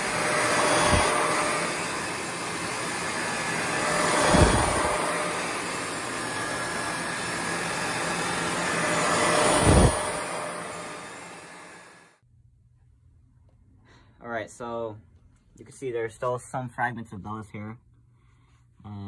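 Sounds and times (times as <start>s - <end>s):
vacuum cleaner on carpet: 0.0s - 12.1s.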